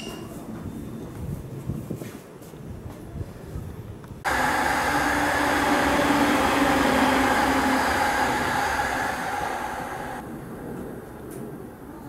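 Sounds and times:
low hum: 0:04.3 - 0:10.4
train running noise with whine: 0:04.3 - 0:12.0.

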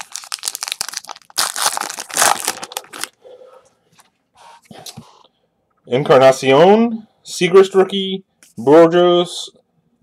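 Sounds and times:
foil wrapper crinkling: 0:00.0 - 0:03.2.

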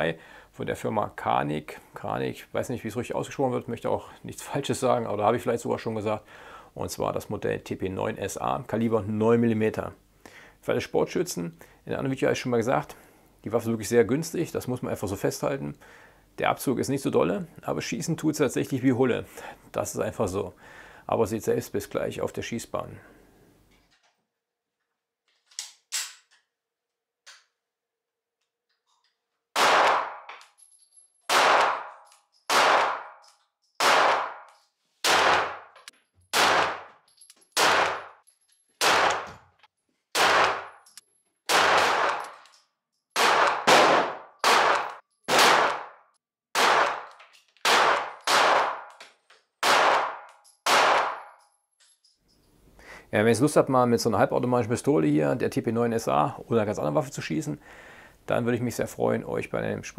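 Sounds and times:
pistol loading clicks: 0:25.4 - 0:26.5, 0:42.0 - 0:42.7
pistol gunshots: 0:29.6 - 0:30.3, 0:31.3 - 0:33.2, 0:33.8 - 0:36.9, 0:37.6 - 0:38.2, 0:38.8 - 0:39.3, 0:40.1 - 0:40.8, 0:41.5 - 0:42.4, 0:43.2 - 0:48.9, 0:49.6 - 0:51.4.

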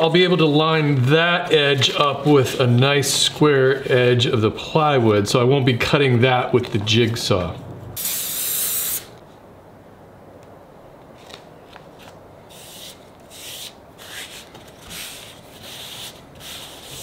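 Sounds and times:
aerosol spray hissing: 0:08.0 - 0:09.1
hand brushing paper: 0:12.5 - 0:17.0.

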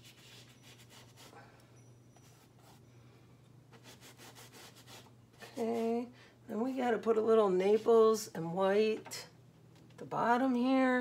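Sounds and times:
brush scrubbing on canvas: 0:00.0 - 0:01.4, 0:03.7 - 0:06.0
low steady hum: 0:00.0 - 0:11.0.

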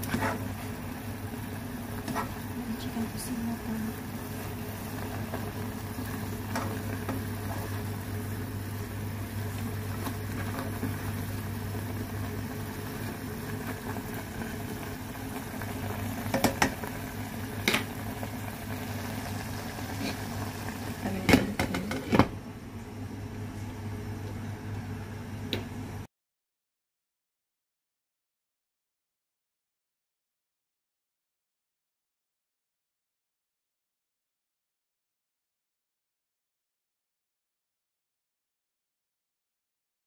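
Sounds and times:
food simmering and bubbling: 0:00.0 - 0:25.2.

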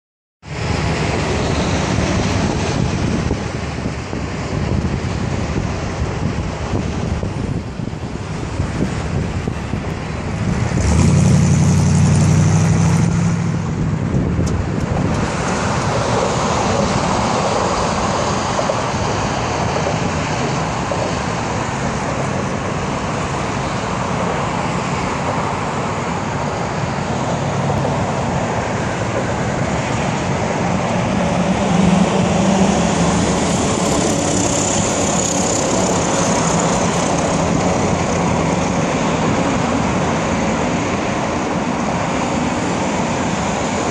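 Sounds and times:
road traffic noise: 0:00.4 - 0:43.9
car exhaust accelerating: 0:08.6 - 0:15.9.

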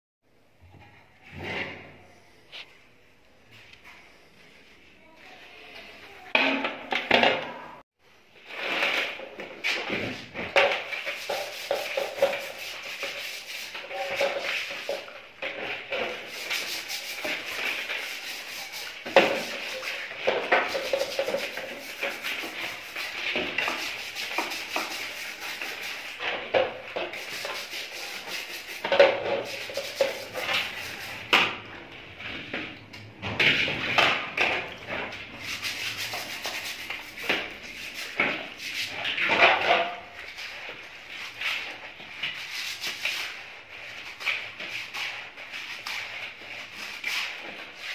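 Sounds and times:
scrubbing metal in water: 0:10.7 - 0:31.3, 0:35.4 - 0:40.6.

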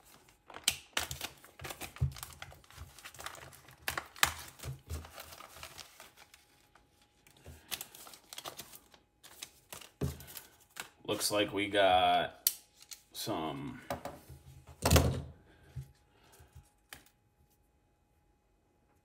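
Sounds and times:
plastic crinkling and tearing: 0:00.0 - 0:11.0.

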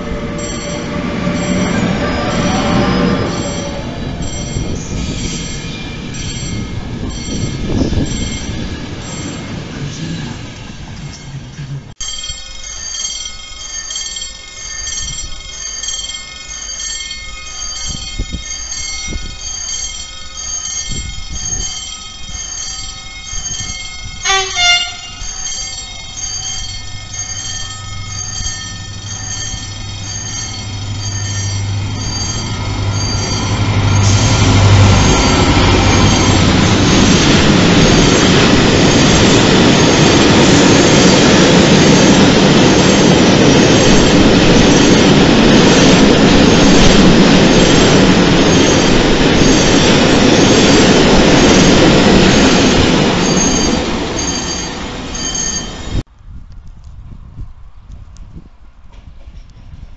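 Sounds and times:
train horn blast: 0:00.0 - 0:04.0, 0:24.2 - 0:25.2
locomotive engine drone: 0:00.0 - 0:56.0
train wheels on rails: 0:00.0 - 0:59.9
electronic warning beep: 0:12.0 - 0:40.4.

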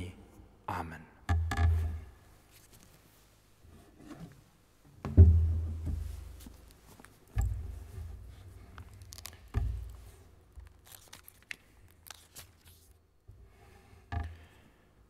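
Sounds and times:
low thumps against lectern: 0:05.0 - 0:06.4
papers rustling: 0:08.5 - 0:13.0.

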